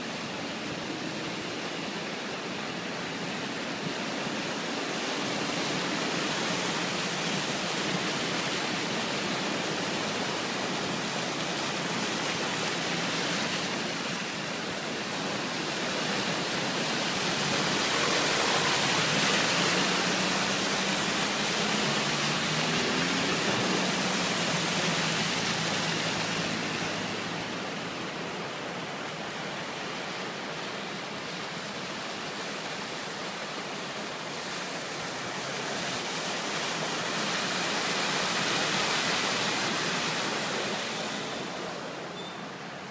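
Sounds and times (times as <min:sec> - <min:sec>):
rushing brook water: 0:00.0 - 0:42.9
tyres splashing through water: 0:03.1 - 0:42.8
faint engine: 0:17.0 - 0:28.0.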